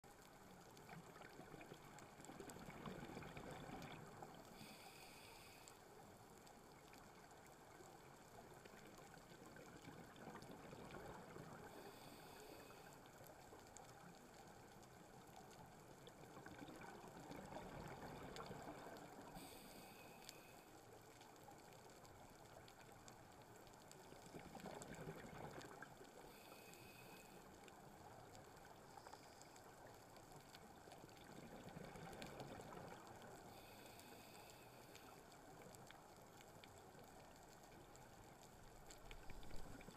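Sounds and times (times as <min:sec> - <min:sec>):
scuba regulator breathing: 0:04.5 - 0:05.9, 0:11.7 - 0:13.0, 0:19.4 - 0:20.7, 0:26.3 - 0:27.6, 0:33.5 - 0:35.2.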